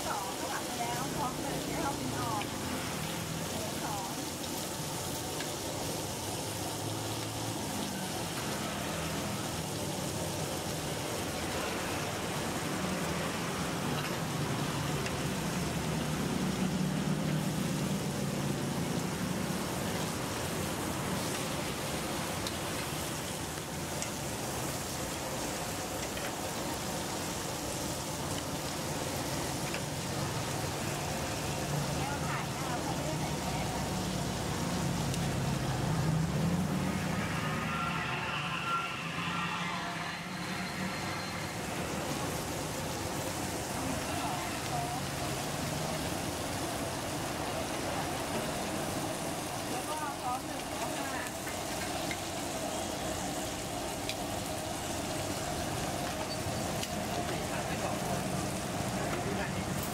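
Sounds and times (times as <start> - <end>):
faint voices: 0.0 - 4.4, 29.1 - 59.9
even hiss: 0.0 - 59.9
steaks sizzling on a griddle: 0.0 - 59.9.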